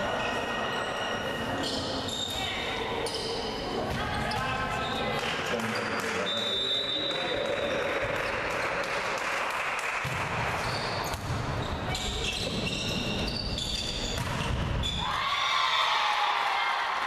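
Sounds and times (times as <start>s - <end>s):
volleyball hits: 9.9s - 11.6s, 14.0s - 15.0s
people shouting and cheering: 15.0s - 17.0s.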